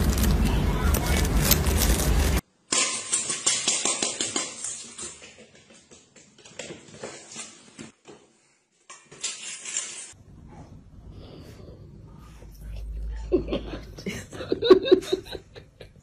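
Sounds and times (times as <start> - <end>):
metal bowl clattering on tiles: 2.7 - 7.6, 8.9 - 10.2.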